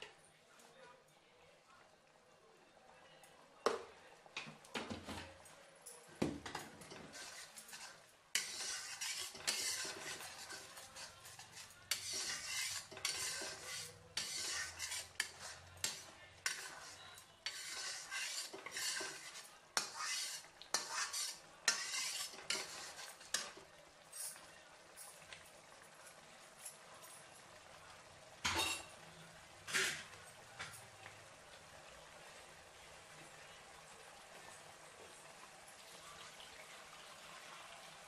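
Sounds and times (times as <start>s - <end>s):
spoon scraping mixture in pan: 6.2s - 24.5s, 29.6s - 30.8s
spoon clinking against pan: 28.4s - 29.0s.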